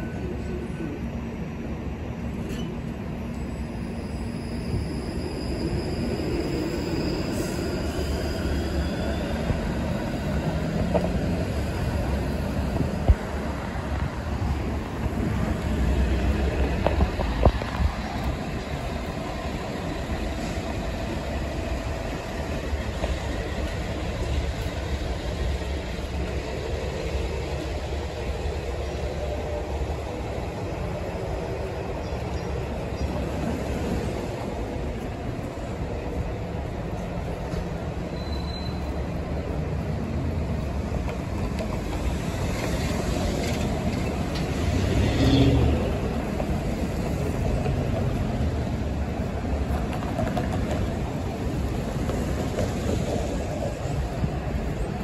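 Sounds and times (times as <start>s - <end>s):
street traffic: 0.0s - 55.0s
bus engine rumbling: 4.6s - 55.0s.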